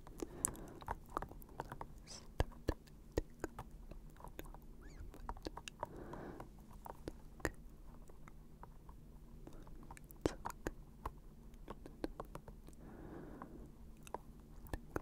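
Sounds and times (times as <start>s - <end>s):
breathy sound: 5.8s - 6.5s, 12.8s - 13.7s.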